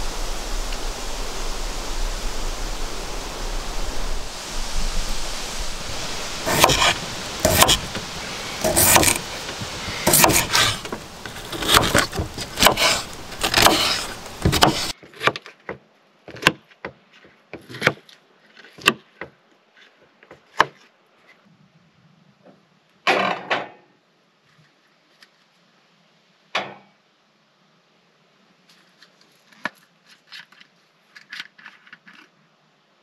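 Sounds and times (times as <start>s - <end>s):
rain hissing: 0.0s - 15.0s
knife tapping cutting board: 6.5s - 6.9s.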